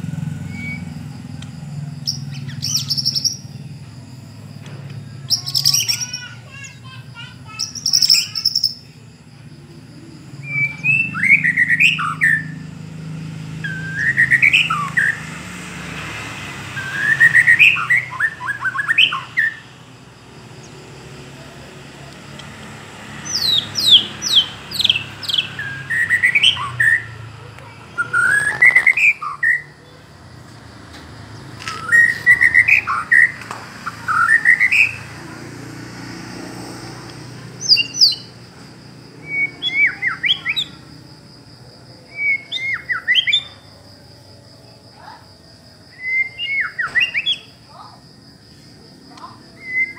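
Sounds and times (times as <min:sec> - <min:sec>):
songbird whistling song: 0:00.2 - 0:03.8, 0:04.6 - 0:09.0, 0:09.6 - 0:19.8, 0:22.2 - 0:30.0, 0:31.4 - 0:35.2, 0:37.6 - 0:38.5, 0:39.1 - 0:41.1, 0:42.0 - 0:44.0, 0:45.9 - 0:47.9, 0:49.1 - 0:49.9.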